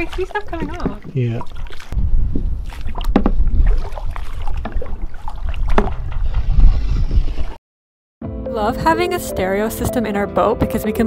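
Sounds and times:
scrub brush on hull: 0.0 - 2.0
water sloshing: 0.0 - 6.7.

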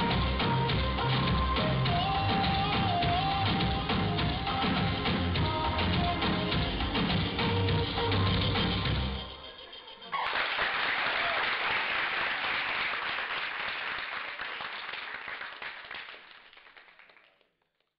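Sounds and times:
audience applauding: 10.1 - 17.7.

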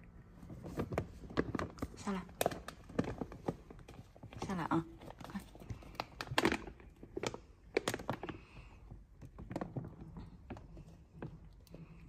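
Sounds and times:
plastic sacks crackling under paws: 0.5 - 8.5.

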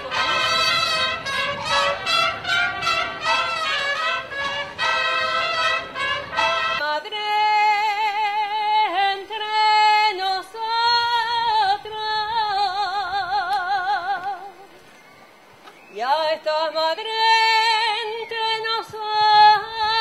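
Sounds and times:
brass band sustained chords: 0.0 - 6.8
woman singing: 6.7 - 14.7, 15.9 - 20.0.

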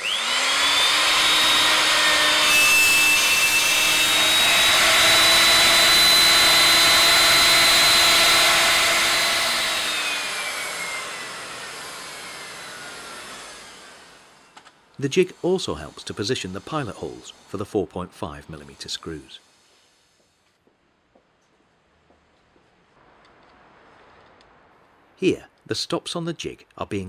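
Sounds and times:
electric router whining: 0.0 - 17.6.

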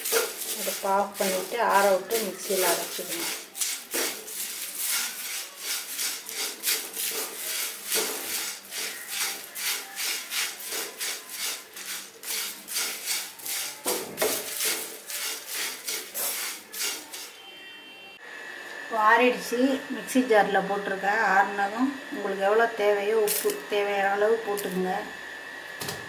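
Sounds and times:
dry leaves stirred in a pan: 0.0 - 17.4.

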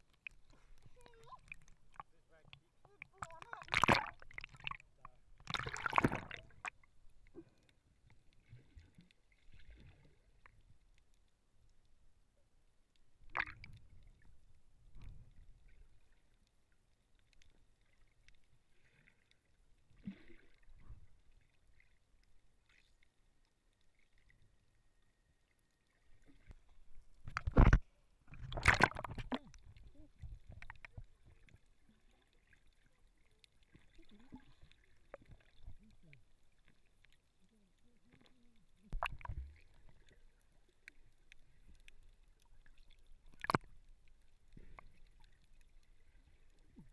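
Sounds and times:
muffled underwater noise: 0.5 - 6.7, 37.4 - 39.3
loud water splashes: 3.2 - 4.6, 28.5 - 29.4
quieter splashes and knocks: 3.2 - 4.8, 5.4 - 6.7, 27.2 - 29.5.

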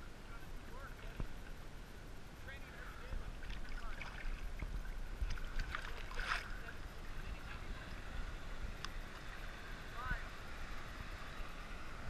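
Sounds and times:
low rumble of water: 0.0 - 12.0
water lapping against camera housing: 0.7 - 1.6, 2.5 - 8.1
water splash: 3.2 - 6.8.

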